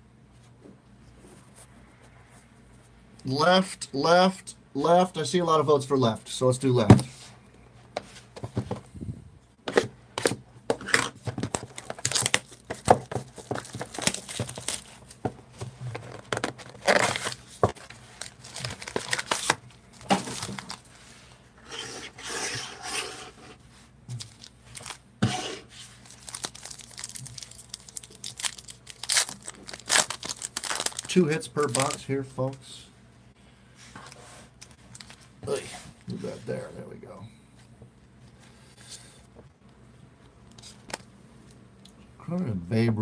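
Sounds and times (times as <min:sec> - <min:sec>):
plastic wrap crinkling and tearing: 0:11.4 - 0:12.7, 0:13.4 - 0:15.1, 0:15.8 - 0:20.9, 0:24.2 - 0:25.0, 0:26.0 - 0:32.1.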